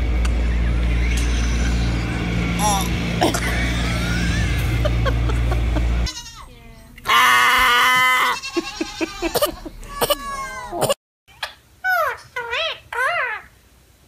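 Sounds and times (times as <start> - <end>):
low rumble: 0.0 - 7.0
farm animal bleating: 6.1 - 6.5, 7.9 - 10.8
faint cries: 7.1 - 11.0.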